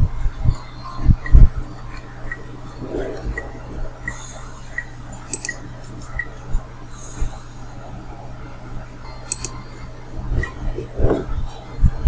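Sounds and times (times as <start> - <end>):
steady low hum: 0.0 - 12.0
computer mouse clicks: 5.3 - 5.6, 9.3 - 9.6.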